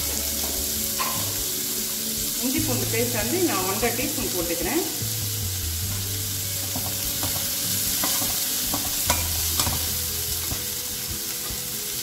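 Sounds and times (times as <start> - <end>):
metal spoon stirring and scraping: 0.0 - 1.4, 5.8 - 10.7
onions sizzling in hot oil: 0.0 - 12.0.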